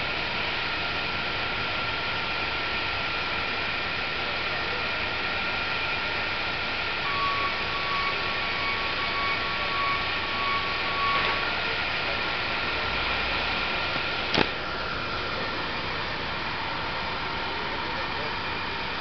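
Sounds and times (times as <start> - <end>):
bus idling: 0.0 - 19.0
street traffic: 0.0 - 19.0
high beep tone: 7.1 - 11.4.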